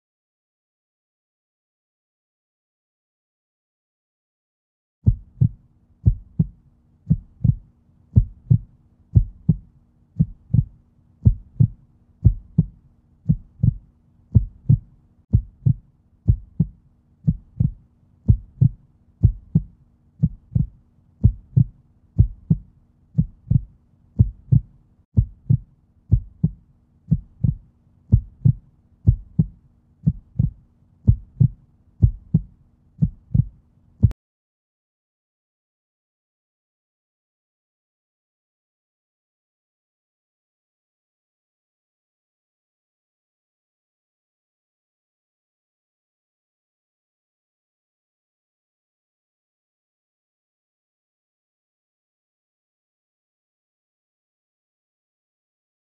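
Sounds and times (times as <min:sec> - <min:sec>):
heartbeat thumps: 0:05.1 - 0:34.2.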